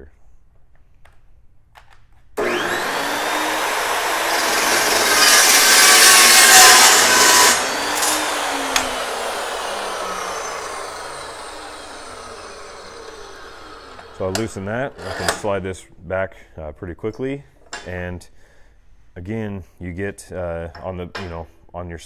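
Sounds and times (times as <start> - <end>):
chop saw cutting steel: 2.4 - 15.6
saw blade winding down: 2.4 - 15.6.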